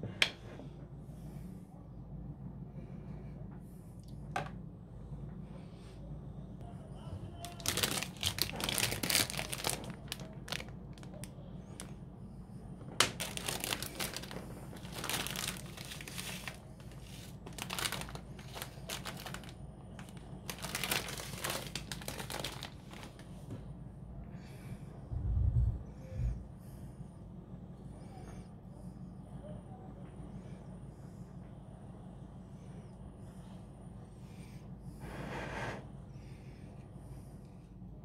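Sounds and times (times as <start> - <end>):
steady low hum: 0.0 - 38.0
paper crinkling: 7.4 - 11.9, 13.0 - 23.3.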